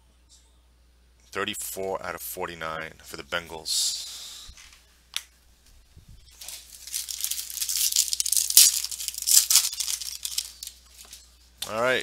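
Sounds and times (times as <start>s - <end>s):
foil wrapper tearing and crinkling: 6.4s - 11.1s.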